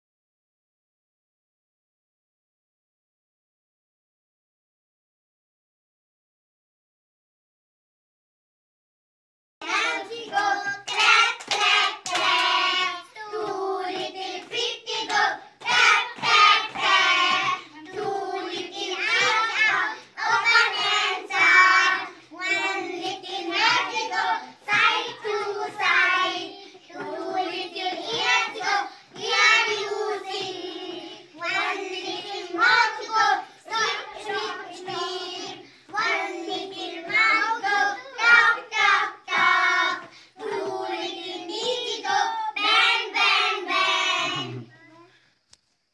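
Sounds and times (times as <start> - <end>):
children singing in chorus: 9.6 - 44.7.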